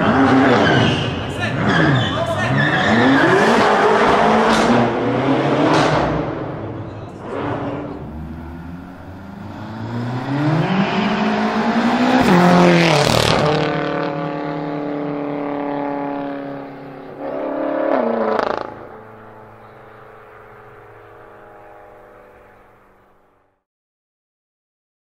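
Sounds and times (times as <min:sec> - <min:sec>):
car accelerating past: 0:00.0 - 0:23.2.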